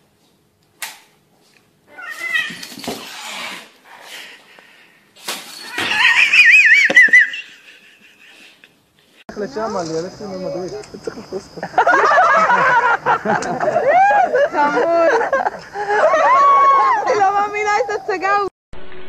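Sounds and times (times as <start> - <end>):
cat yowling: 1.9 - 2.8, 5.6 - 6.9
cat hissing and growling: 1.9 - 4.5.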